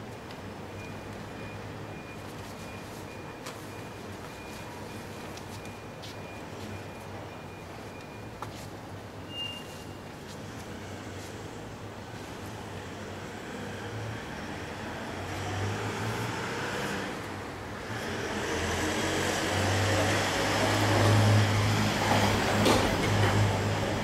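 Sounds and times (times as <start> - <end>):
vehicle passing: 12.9 - 24.0.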